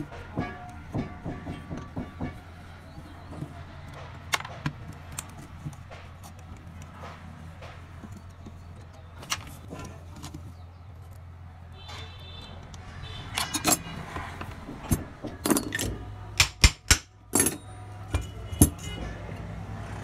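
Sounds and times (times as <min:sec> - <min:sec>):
metal rod tapping metal housing: 0:00.2 - 0:02.7.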